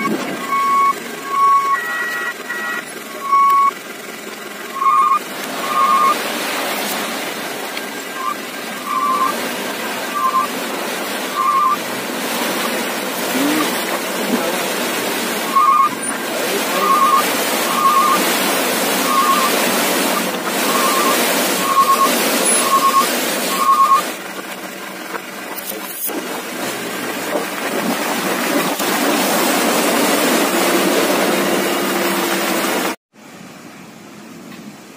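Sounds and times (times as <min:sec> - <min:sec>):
high chirping beeps: 0:00.0 - 0:03.8, 0:04.7 - 0:06.2, 0:08.1 - 0:09.4, 0:10.0 - 0:10.5, 0:11.3 - 0:11.8, 0:15.5 - 0:18.3, 0:19.0 - 0:19.6, 0:20.7 - 0:24.1
engine and sliding load rushing: 0:00.0 - 0:34.9.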